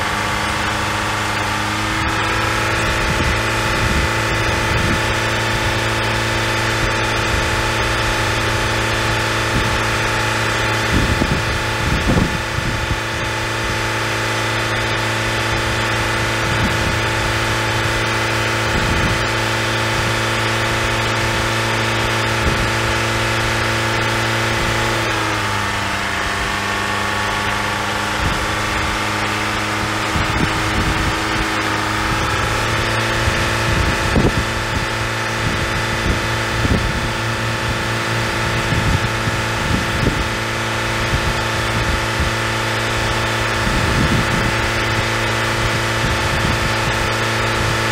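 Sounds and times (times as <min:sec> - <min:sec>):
car engine idling: 0:00.0 - 0:47.9
wind thumps on microphone: 0:10.8 - 0:13.8, 0:18.7 - 0:19.4, 0:29.8 - 0:42.4, 0:43.0 - 0:47.9.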